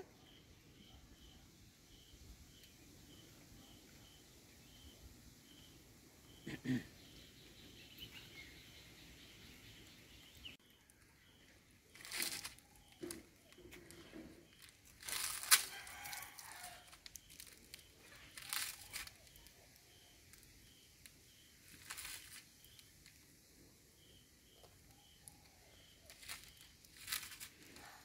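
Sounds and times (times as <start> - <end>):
plastic snack packet crinkling: 11.9 - 13.2, 14.6 - 19.7, 21.6 - 23.2, 26.0 - 28.0.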